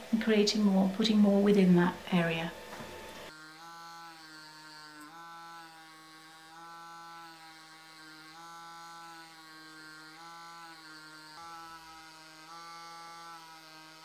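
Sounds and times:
tattoo pen motor buzzing: 2.9 - 14.0.

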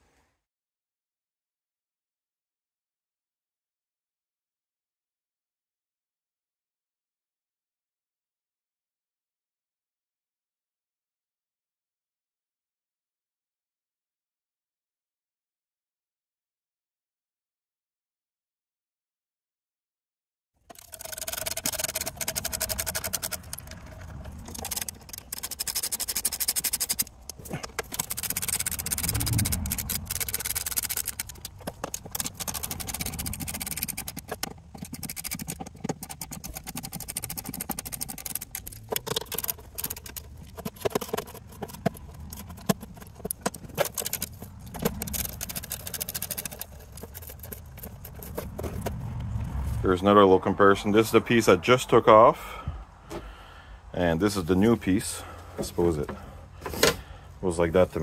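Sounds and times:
socket ratchet clicking: 20.7 - 23.9, 24.5 - 48.5.

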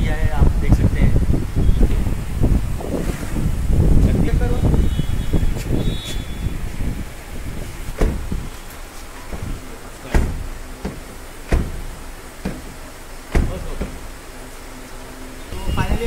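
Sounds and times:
car door latch clicks: 8.0 - 8.4, 10.1 - 12.7.

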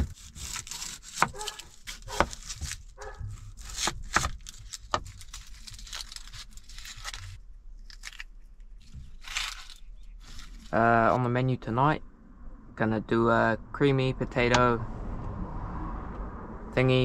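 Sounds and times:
onion skin crackling: 0.0 - 10.8.

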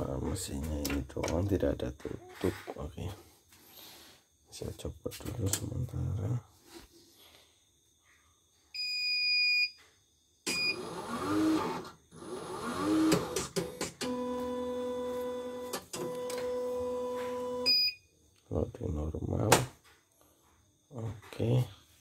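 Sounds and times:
machine beep: 10.5 - 10.9, 14.1 - 18.0
embroidery machine motors whirring: 10.8 - 17.6.

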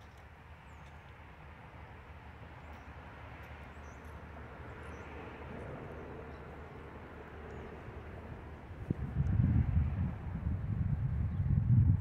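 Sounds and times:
birds chirping: 3.6 - 5.3.

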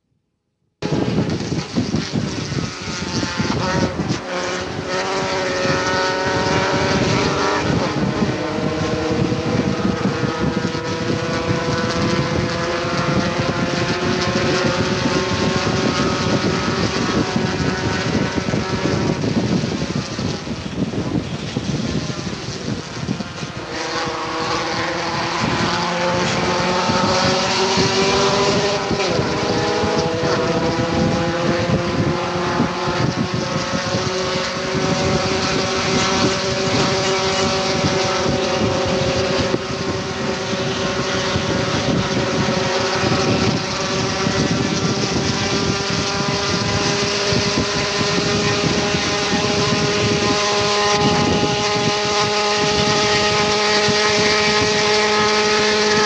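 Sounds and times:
wind and road noise: 0.0 - 56.0
car engine accelerating hard: 0.8 - 56.0.

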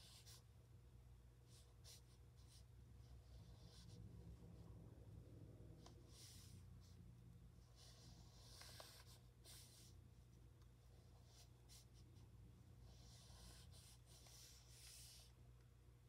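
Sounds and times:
low steady hum: 0.0 - 16.0
brush stroking across paper: 7.7 - 10.0, 12.8 - 15.4.

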